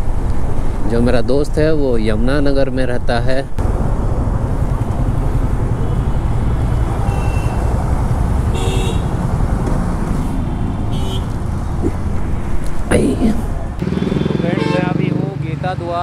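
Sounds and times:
horn toot: 0:08.5 - 0:09.2, 0:13.9 - 0:15.1
motorcycle engine running: 0:13.8 - 0:15.3.

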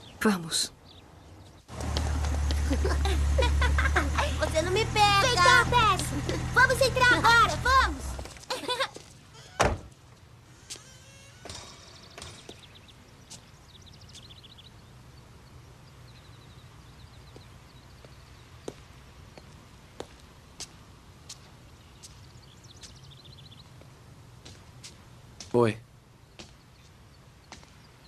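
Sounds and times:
footsteps on concrete: 0:01.7 - 0:02.8, 0:17.3 - 0:22.2, 0:23.8 - 0:25.6, 0:26.4 - 0:27.8
high chirping trills: 0:10.8 - 0:18.6.

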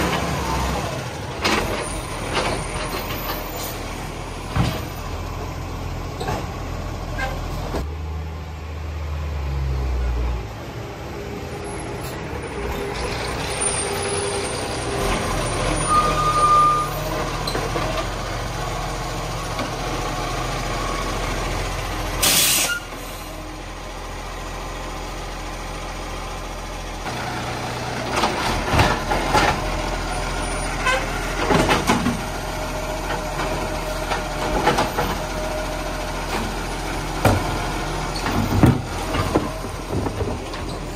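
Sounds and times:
garbage truck diesel engine: 0:00.0 - 0:40.9
air brake hiss: 0:22.2 - 0:23.3
hydraulic arm whining and clanking: 0:27.1 - 0:40.9.

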